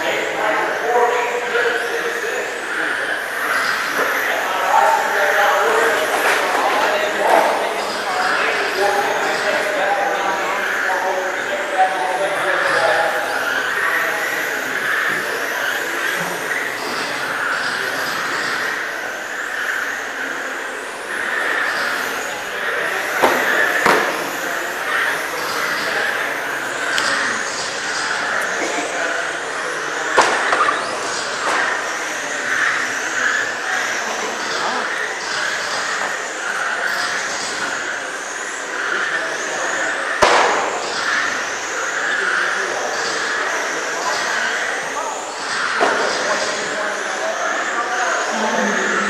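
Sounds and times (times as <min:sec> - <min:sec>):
electric rc cars whining past: 0:00.0 - 0:49.0
sharp crack: 0:40.2 - 0:40.8.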